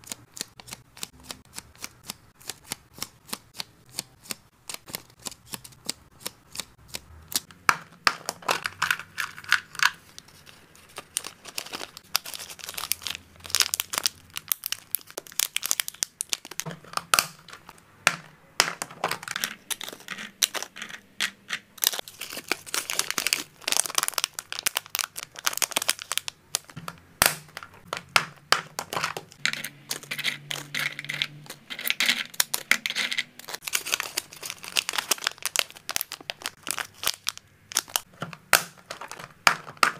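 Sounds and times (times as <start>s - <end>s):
plastic bags crinkling: 8.1s - 17.8s, 21.8s - 39.9s.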